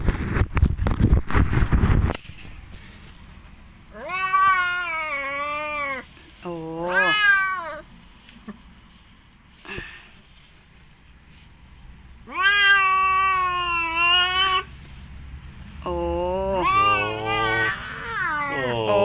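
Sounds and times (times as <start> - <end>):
cat yowling: 4.0 - 6.0, 6.8 - 7.8, 12.2 - 14.7, 16.4 - 19.0.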